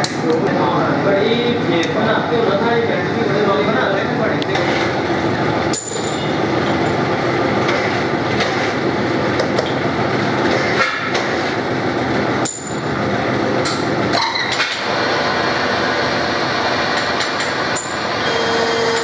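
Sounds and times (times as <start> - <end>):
sharp metallic clinks: 5.7 - 7.0
metal lathe cutting steel: 14.2 - 19.0.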